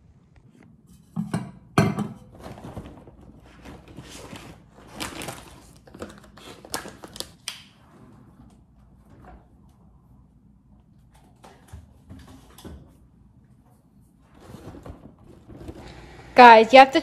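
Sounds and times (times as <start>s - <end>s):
shopping bags rustling: 2.3s - 7.4s.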